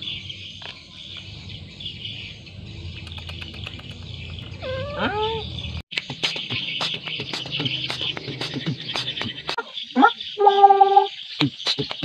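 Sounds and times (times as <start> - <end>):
birds chirping: 0.0 - 12.0
cat meowing: 4.6 - 5.5.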